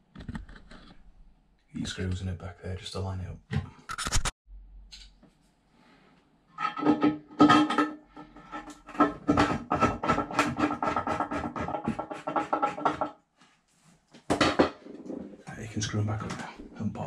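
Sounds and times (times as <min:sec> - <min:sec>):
screwdriver scraping on ceramic: 0:08.3 - 0:13.1.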